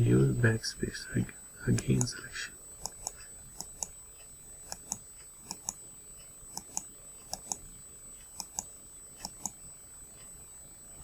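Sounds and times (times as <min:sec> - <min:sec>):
steady high-pitched whine: 0:00.0 - 0:11.0
computer mouse clicks: 0:02.8 - 0:04.0, 0:04.6 - 0:05.8, 0:06.5 - 0:09.6.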